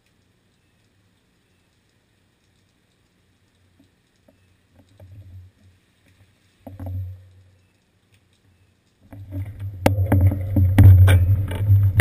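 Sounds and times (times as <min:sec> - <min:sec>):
wind: 0:00.0 - 0:12.0
bicycle tyres rolling on wet concrete: 0:03.6 - 0:12.0.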